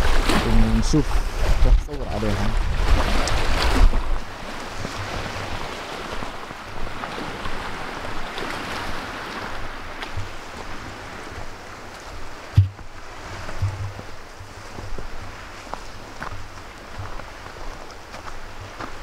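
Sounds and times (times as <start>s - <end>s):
lake waves: 0.0s - 19.0s
wind: 0.0s - 19.0s
footsteps crunching on snow: 9.5s - 19.0s
thump: 12.6s - 12.8s.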